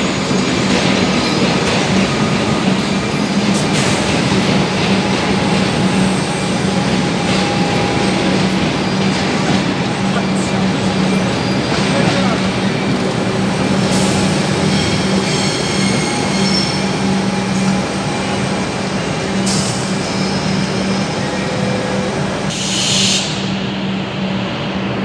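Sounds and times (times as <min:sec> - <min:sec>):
electric train hum: 0:00.0 - 0:25.0
train wheels rumbling: 0:00.0 - 0:25.0
wheel squeals: 0:14.7 - 0:17.5.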